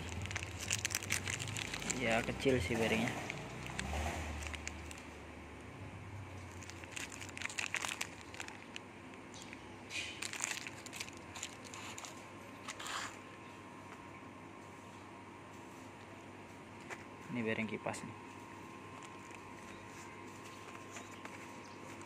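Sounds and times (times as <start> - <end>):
plastic film crinkling: 0.0 - 5.3, 6.2 - 13.2, 18.6 - 22.0.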